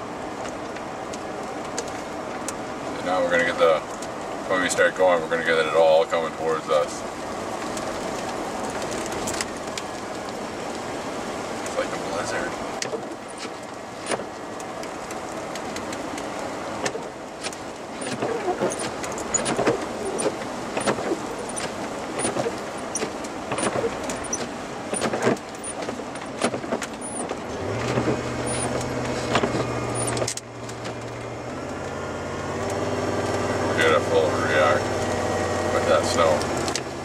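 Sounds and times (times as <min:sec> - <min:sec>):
truck engine and road noise: 0:00.0 - 0:37.0
snow clumps hitting windshield: 0:11.5 - 0:31.9
windshield wipers knocking: 0:12.8 - 0:15.0, 0:15.6 - 0:31.1.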